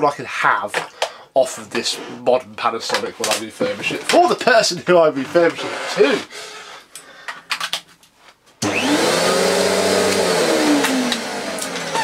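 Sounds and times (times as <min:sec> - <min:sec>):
vacuum cleaner motor whining: 0:08.6 - 0:12.0.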